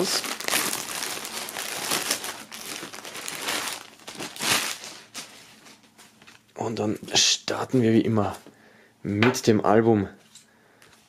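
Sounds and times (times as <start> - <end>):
plastic bag crinkling: 0.0 - 6.5.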